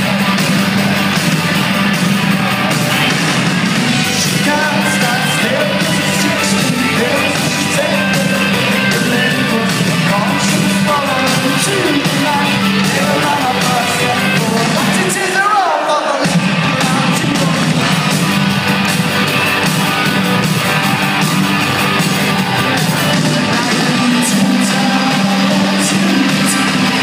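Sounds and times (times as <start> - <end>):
rock band playing live: 0.0 - 27.0
person singing: 3.9 - 18.4, 22.2 - 27.0.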